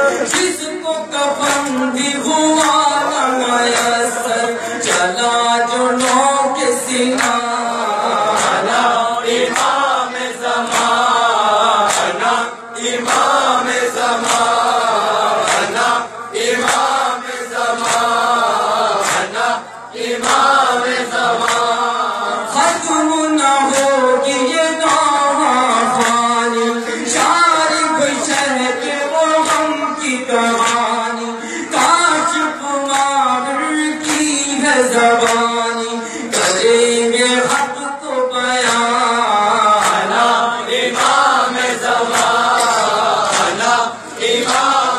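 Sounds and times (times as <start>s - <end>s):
men chanting: 0.0s - 44.9s
hands slapping chests: 11.8s - 12.2s, 15.4s - 15.9s, 17.8s - 18.2s.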